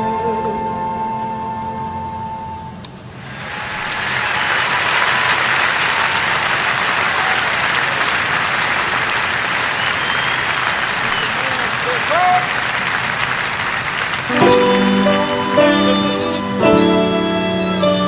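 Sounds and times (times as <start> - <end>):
audience applause: 3.2 - 16.5.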